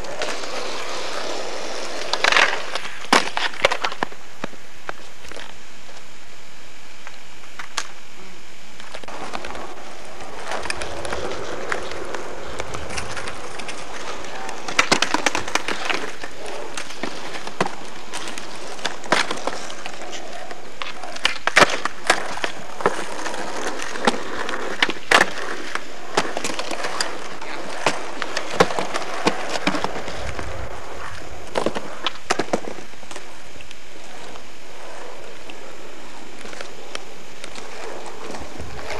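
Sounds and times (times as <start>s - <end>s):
skateboard rolling on asphalt: 0.0s - 38.9s
skateboard clacks and slaps: 8.8s - 33.3s.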